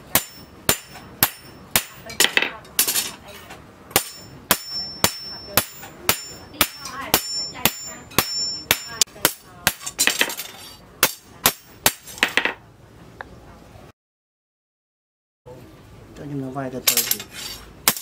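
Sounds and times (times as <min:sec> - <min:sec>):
hammer striking steel blade: 0:00.0 - 0:03.1, 0:03.9 - 0:12.5, 0:16.9 - 0:18.0.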